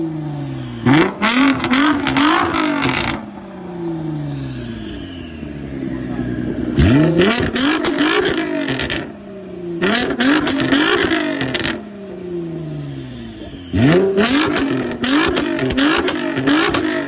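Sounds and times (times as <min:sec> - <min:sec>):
sports car engine revving: 0:00.0 - 0:17.0
exhaust cracks: 0:13.7 - 0:17.0.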